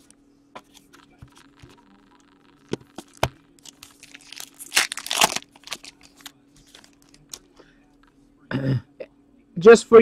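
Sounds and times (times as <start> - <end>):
foil wrapper tearing and crinkling: 2.9 - 7.4.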